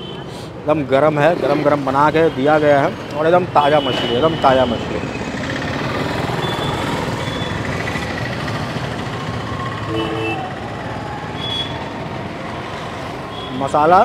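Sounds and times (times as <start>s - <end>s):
street traffic noise: 0.0s - 14.0s
horn beeps: 6.3s - 7.7s, 9.8s - 10.6s
lower two-tone horn: 9.9s - 10.5s.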